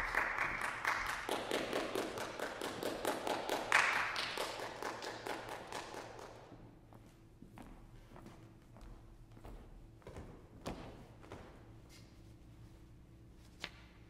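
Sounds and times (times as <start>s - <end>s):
small audience applauding: 0.0s - 6.5s.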